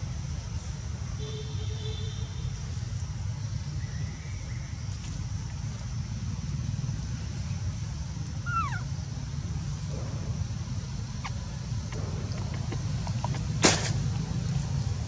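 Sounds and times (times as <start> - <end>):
low outdoor rumble: 2.6 - 15.0
baby monkey squeaky call: 8.4 - 8.9.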